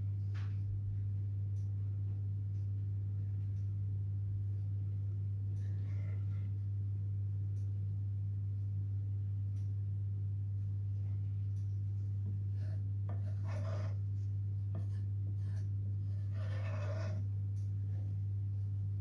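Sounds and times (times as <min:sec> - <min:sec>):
low hum: 0:00.0 - 0:19.0
wooden spatula scraping a pan: 0:12.6 - 0:14.0, 0:14.7 - 0:17.3.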